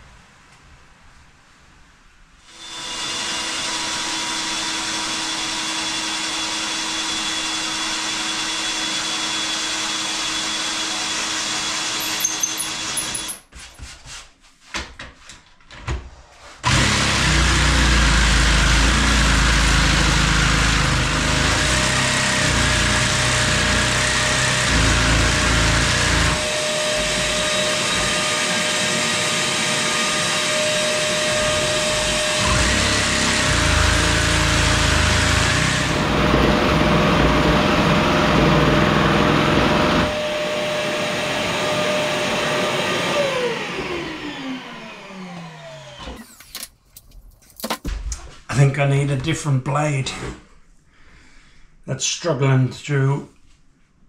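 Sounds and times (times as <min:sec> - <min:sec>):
cordless drill running: 0:02.5 - 0:13.4, 0:16.6 - 0:46.6
jigsaw cutting sheet: 0:02.5 - 0:13.4, 0:16.6 - 0:46.7
vacuum running: 0:16.6 - 0:46.4.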